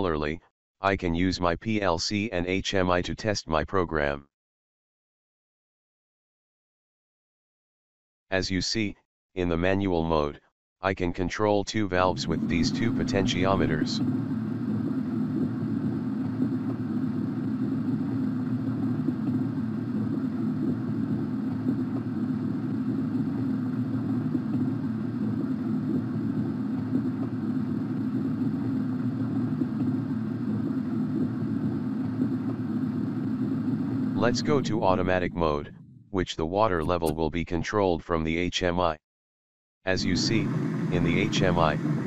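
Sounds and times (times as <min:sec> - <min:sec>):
faint hum: 0:11.8 - 0:37.5, 0:39.9 - 0:42.0.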